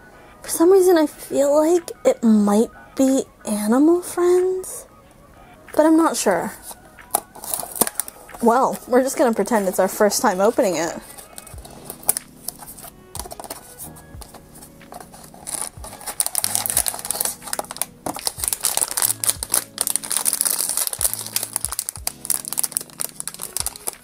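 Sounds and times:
soft background music: 0.0s - 24.0s
foil bag crinkling and tearing: 7.2s - 8.2s, 11.0s - 24.0s
cardboard box being opened: 15.0s - 24.0s.

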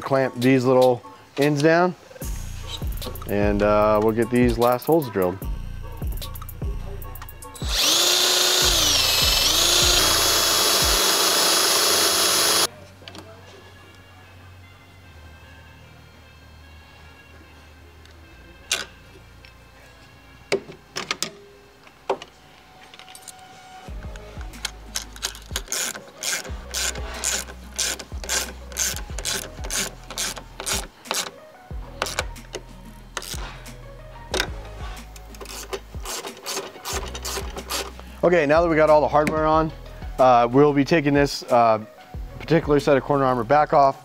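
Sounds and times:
cordless drill whining: 7.6s - 12.7s, 25.0s - 31.2s
hand ratchet clicking: 7.6s - 12.7s, 24.1s - 31.3s, 32.0s - 33.4s, 35.1s - 38.0s.

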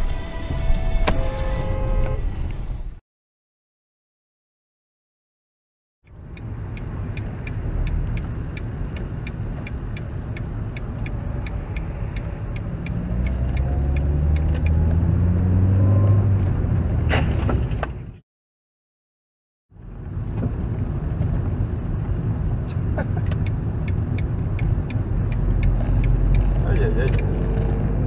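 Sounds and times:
car engine and road rumble: 0.0s - 3.0s, 6.0s - 18.2s, 19.7s - 28.0s
turn signal ticking: 6.0s - 16.5s, 20.0s - 28.0s.

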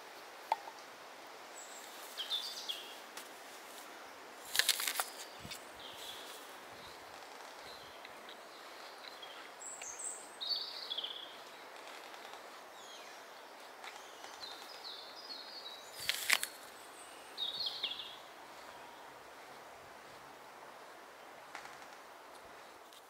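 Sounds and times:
small birds chirping: 1.6s - 3.0s, 4.4s - 20.2s.

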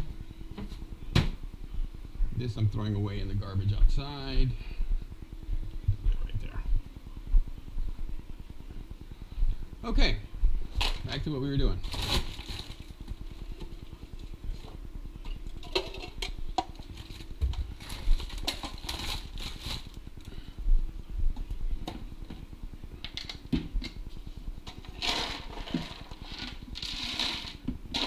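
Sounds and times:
low steady hum: 0.0s - 28.0s
plastic bag rustling and crinkling: 10.7s - 13.6s, 16.0s - 20.1s.

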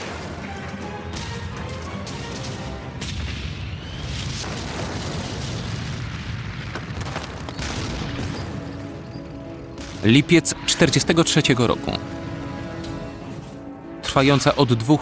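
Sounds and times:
gunfire: 1.1s - 8.9s
explosions: 2.0s - 12.6s.

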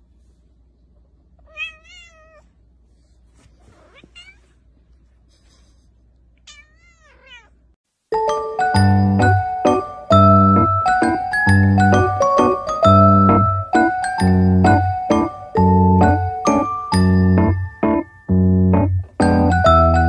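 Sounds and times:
kitten meowing: 1.5s - 2.4s, 6.5s - 7.5s
piano music: 8.1s - 20.0s.

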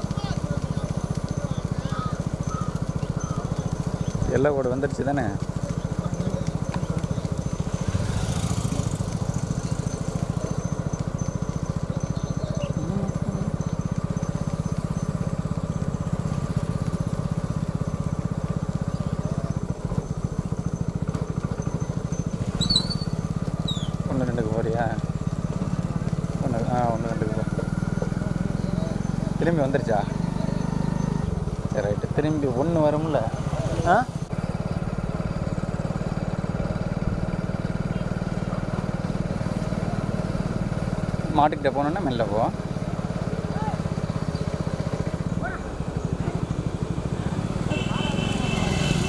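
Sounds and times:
motorcycle engines idling: 0.0s - 49.0s.

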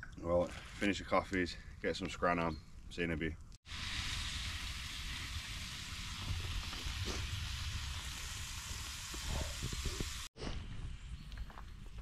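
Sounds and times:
bacon sizzling in a frying pan: 3.7s - 10.3s.

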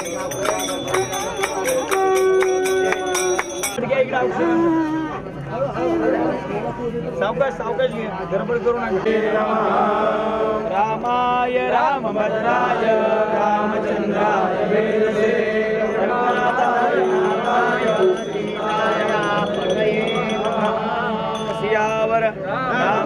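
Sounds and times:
group of voices chanting: 11.5s - 21.8s.

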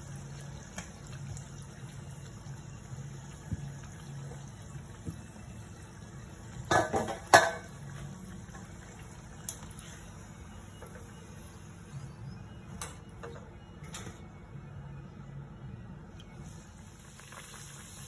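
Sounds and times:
bread sizzling in hot oil: 0.0s - 10.2s, 16.4s - 18.0s.

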